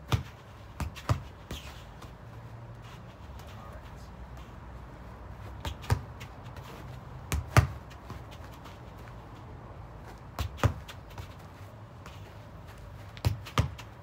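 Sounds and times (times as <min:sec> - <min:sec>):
football thuds against feet: 0:05.6 - 0:06.3, 0:07.3 - 0:08.4, 0:10.2 - 0:11.4, 0:13.1 - 0:14.0.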